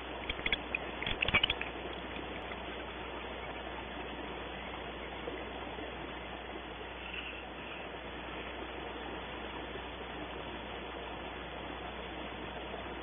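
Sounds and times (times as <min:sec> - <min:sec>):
steady hiss: 0:03.1 - 0:13.0.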